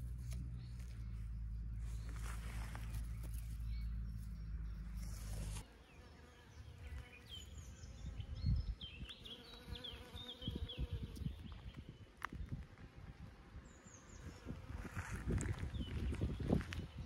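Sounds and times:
irregular low rumbles: 0:00.0 - 0:05.6
steady low buzzing: 0:00.0 - 0:11.7
small birds chirping: 0:00.0 - 0:17.0.

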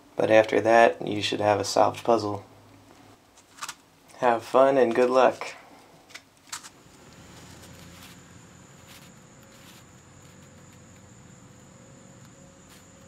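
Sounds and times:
low hum: 0:06.7 - 0:13.0
high-pitched whine: 0:06.8 - 0:13.0.

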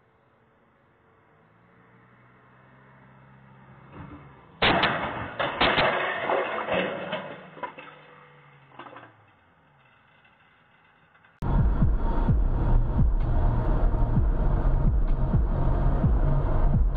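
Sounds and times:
car crash impacts: 0:04.6 - 0:09.3
clattering and scraping: 0:04.6 - 0:11.4
faint engine hum: 0:11.4 - 0:16.9.

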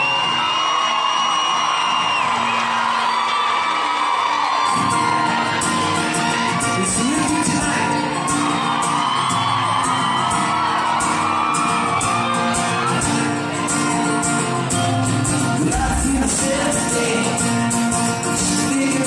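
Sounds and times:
fans whooping and cheering: 0:00.0 - 0:19.0
live pop-rock band playing: 0:04.8 - 0:19.0.

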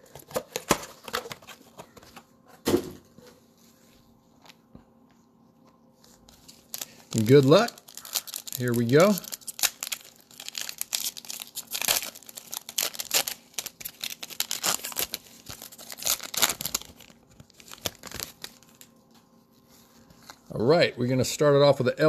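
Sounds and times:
plastic wrapping tearing and crinkling: 0:06.3 - 0:19.0.

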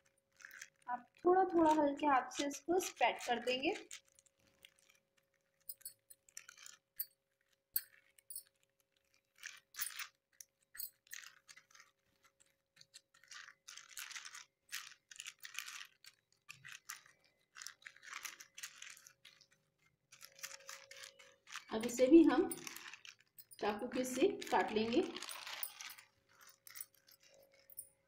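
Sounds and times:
plastic sheet crinkling: 0:00.0 - 0:28.0
bangles clinking: 0:05.6 - 0:07.2, 0:07.8 - 0:08.6, 0:09.5 - 0:11.8, 0:20.1 - 0:28.0.

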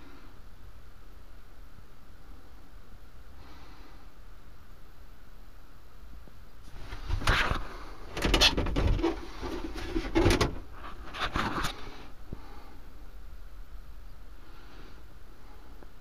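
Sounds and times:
low steady hum: 0:00.0 - 0:16.0
plastic fittings knocking and clattering: 0:08.2 - 0:10.7.

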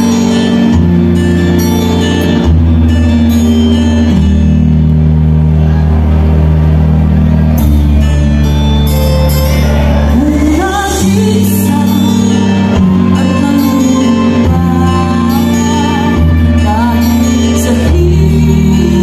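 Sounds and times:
loud backing music: 0:00.0 - 0:19.0
person singing live: 0:07.8 - 0:19.0.

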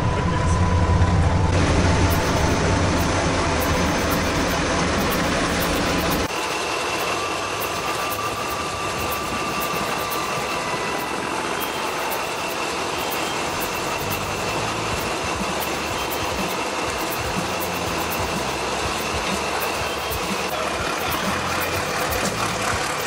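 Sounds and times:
truck engine running: 0:00.0 - 0:23.0.

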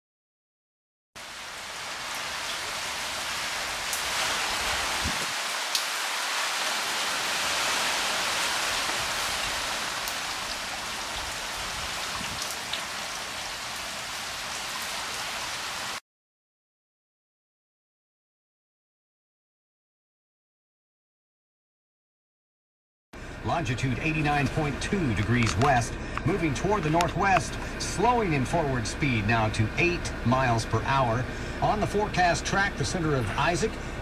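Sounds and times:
raindrops ticking close by: 0:01.2 - 0:15.2, 0:23.6 - 0:34.0
steady rain hiss: 0:01.2 - 0:16.0, 0:23.2 - 0:34.0.

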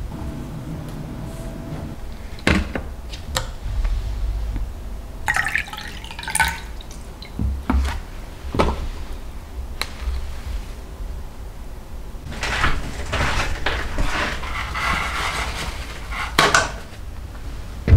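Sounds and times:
tea pouring into a glass: 0:05.3 - 0:07.4.

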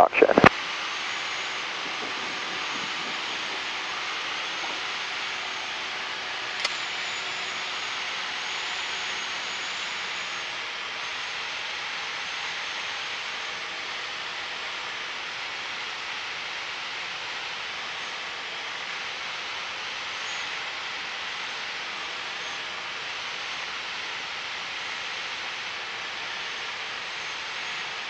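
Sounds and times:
airplane cabin engine hiss: 0:00.0 - 0:07.6.

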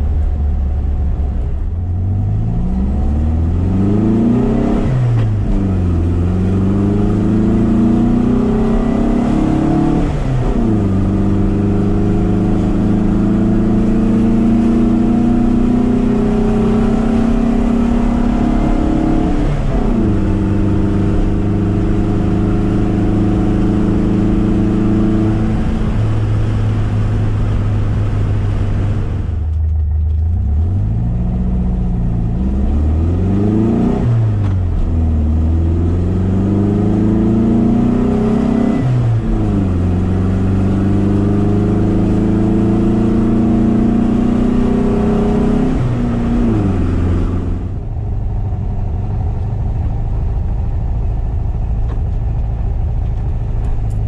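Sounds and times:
car engine revving while driving: 0:00.0 - 0:54.0.

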